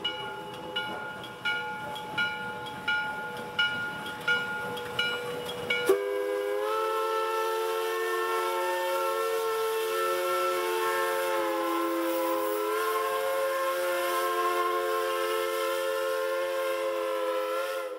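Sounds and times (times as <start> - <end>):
steam whistle chord: 5.7 - 17.9.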